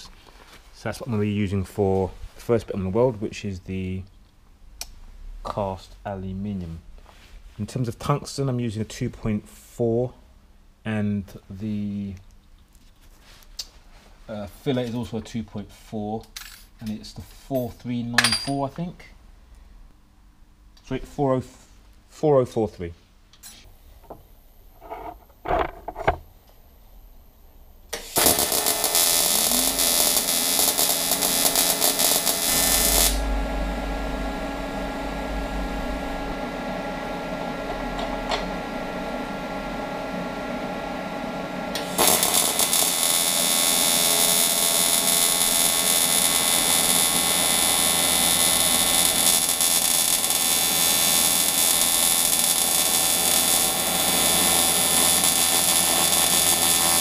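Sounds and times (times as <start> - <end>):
welding arc buzzing: 27.9 - 57.0.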